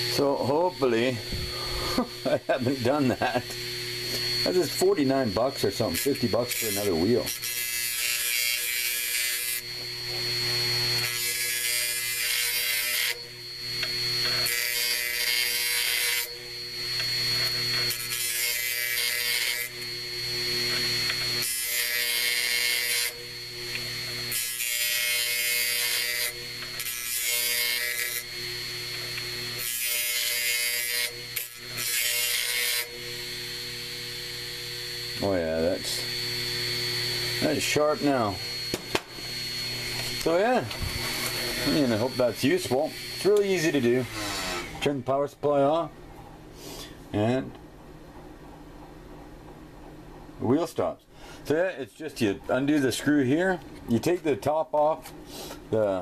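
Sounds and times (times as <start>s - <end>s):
hard drive motor whine: 0.0s - 44.9s
cutting wheel scraping on sandpaper: 17.2s - 18.4s.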